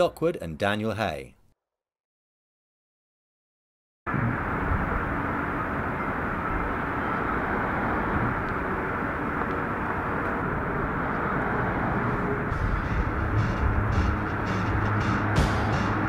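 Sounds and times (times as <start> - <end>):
distant traffic rumble: 4.1 - 16.0.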